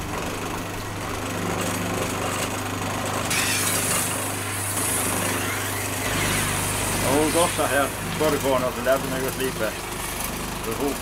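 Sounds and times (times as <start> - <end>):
grindstone motor humming: 3.0 - 11.0
blade grinding on stone: 3.3 - 7.9.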